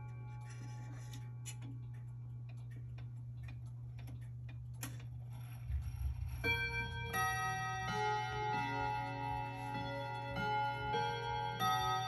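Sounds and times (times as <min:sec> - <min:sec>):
clocks clicking: 0:00.0 - 0:12.0
wall clock ticking: 0:00.0 - 0:12.0
clock chime ringing: 0:05.4 - 0:12.0.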